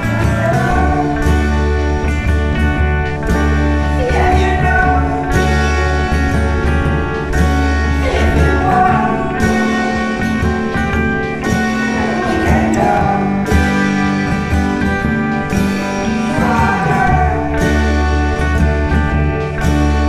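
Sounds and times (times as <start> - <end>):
guitar: 0.0 - 20.0
sustained low notes: 0.0 - 20.0.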